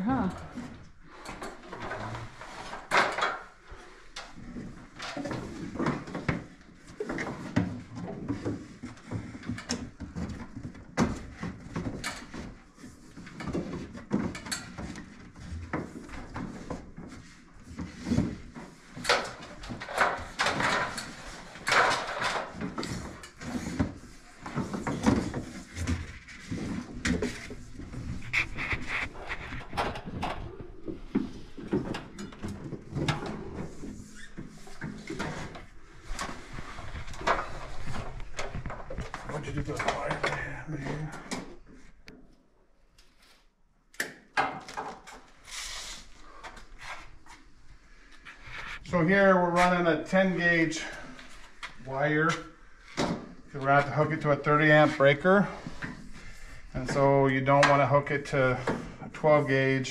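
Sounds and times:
cable dragging over wood: 0:17.2 - 0:41.0.

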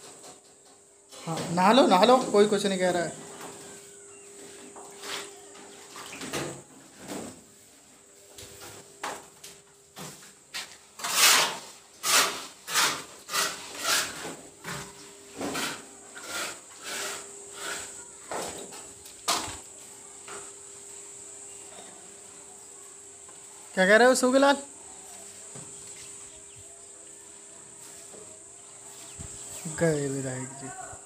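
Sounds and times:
high drone of insects: 0:12.0 - 0:31.0.

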